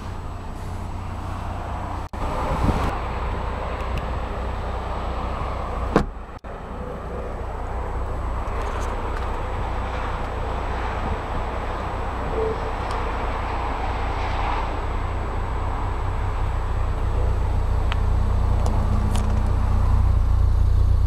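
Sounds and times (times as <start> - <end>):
outdoor rumble and hiss: 0.0 - 21.0
car door shutting: 5.8 - 6.2.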